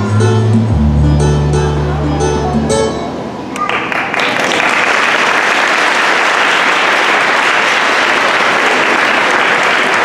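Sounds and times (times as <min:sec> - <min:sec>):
guitar music: 0:00.0 - 0:03.5
audience applauding: 0:03.6 - 0:10.0.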